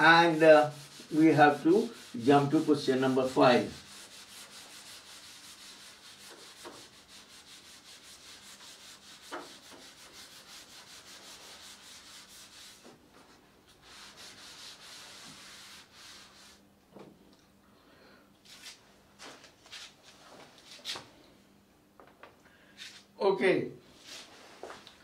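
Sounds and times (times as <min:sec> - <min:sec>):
rubbing on writing surface: 0:00.2 - 0:16.6.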